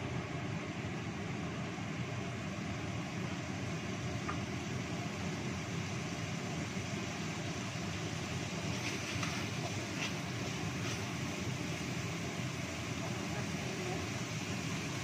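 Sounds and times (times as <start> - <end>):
range hood fan humming: 0.0 - 15.0.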